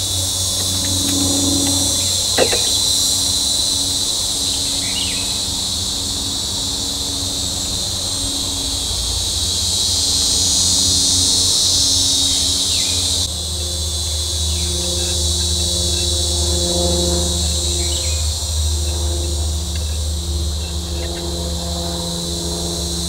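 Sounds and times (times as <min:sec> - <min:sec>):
insects chorus: 0:00.0 - 0:23.0
sharp knock: 0:02.4 - 0:02.8.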